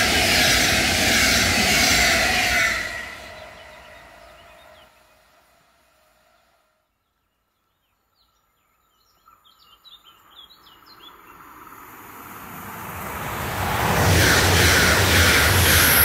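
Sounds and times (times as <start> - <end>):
high-speed train approaching: 0.0 - 7.0, 9.6 - 16.0
birds chirping: 3.2 - 5.3, 6.4 - 11.6.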